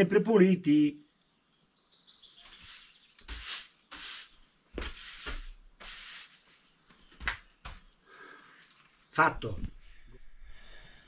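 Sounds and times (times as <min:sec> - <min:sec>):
broom sweeping floor: 0:02.4 - 0:07.1.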